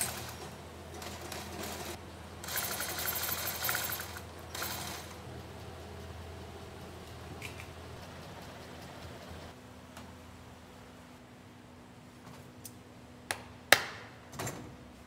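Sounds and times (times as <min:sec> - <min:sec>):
sewing machine running: 0:00.0 - 0:05.3
low workshop hum: 0:00.0 - 0:15.0.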